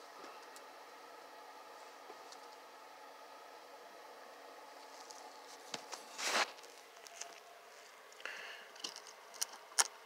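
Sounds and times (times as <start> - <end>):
plastic bag rustling: 4.8 - 7.5.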